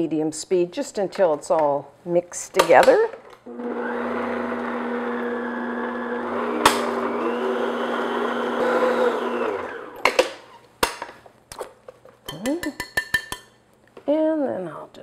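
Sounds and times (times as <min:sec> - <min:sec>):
stand mixer whisking: 0:03.5 - 0:10.0.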